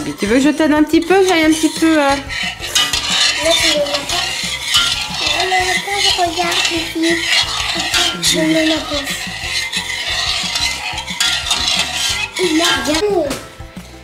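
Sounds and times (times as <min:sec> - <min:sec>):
metal spoon scraping saucepan: 0:00.0 - 0:13.1.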